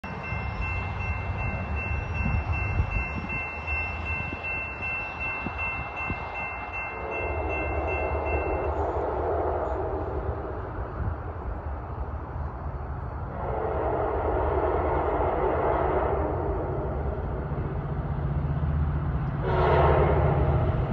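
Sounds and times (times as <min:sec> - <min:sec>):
crossing warning bell ringing: 0:00.0 - 0:09.0
approaching train: 0:00.0 - 0:20.9
wind rumbling on microphone: 0:00.0 - 0:20.9.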